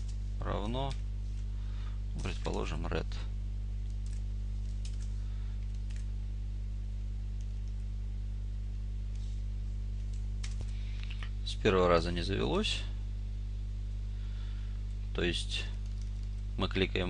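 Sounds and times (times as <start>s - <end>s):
low mains hum: 0.0s - 17.0s
faint keyboard and mouse clicks: 3.8s - 6.1s, 10.0s - 11.3s, 15.7s - 16.4s.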